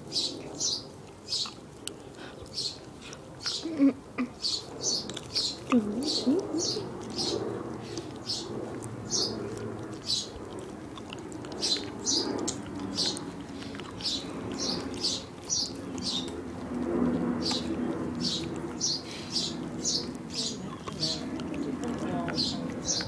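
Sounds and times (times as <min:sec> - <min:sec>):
dog licking wet smacks: 0:05.0 - 0:23.0.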